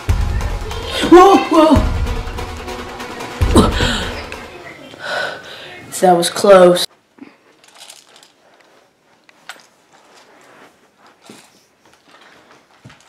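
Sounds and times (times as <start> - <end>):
light handling rustles: 7.4 - 13.0.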